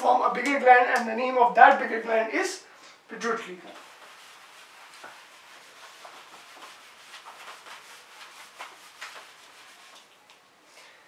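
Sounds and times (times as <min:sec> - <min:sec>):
duster rubbing whiteboard: 0:03.7 - 0:10.1.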